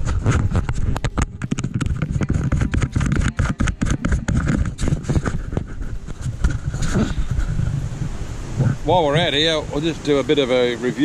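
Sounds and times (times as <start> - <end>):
taps on camera housing: 0.4 - 7.4
low rumble: 5.0 - 9.8.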